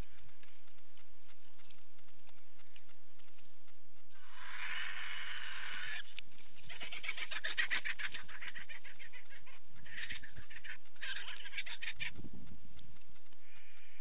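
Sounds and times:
vultures hissing: 4.2 - 6.1
vultures cackling chatter: 4.2 - 12.2, 13.4 - 14.0.

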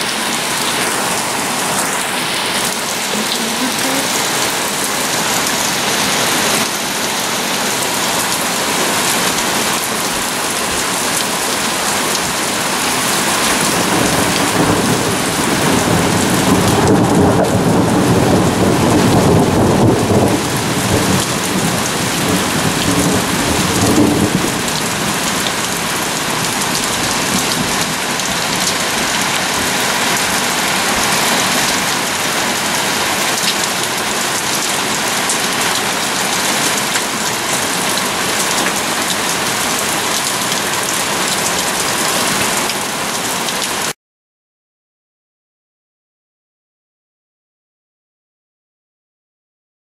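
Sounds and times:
heavy rain pouring: 0.0 - 44.0
thunder rumbling: 13.6 - 29.1.

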